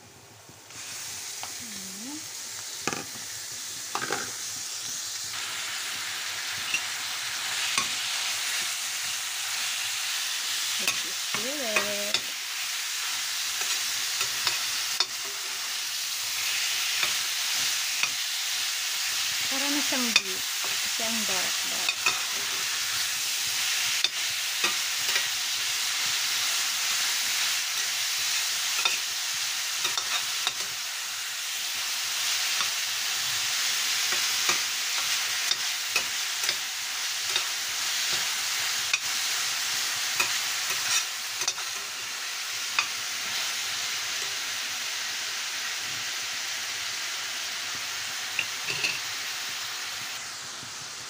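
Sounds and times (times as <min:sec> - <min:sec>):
meat sizzling in oil: 0:00.0 - 0:51.0
metal spatula scraping pan: 0:40.2 - 0:41.8.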